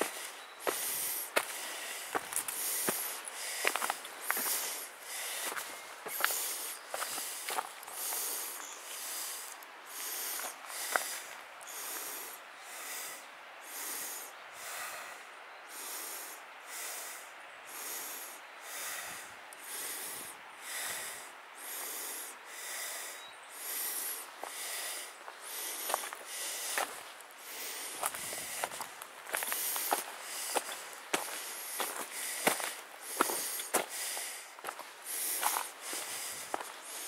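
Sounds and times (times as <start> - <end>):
footsteps on leafy stony path: 0.0 - 11.4, 24.4 - 37.0.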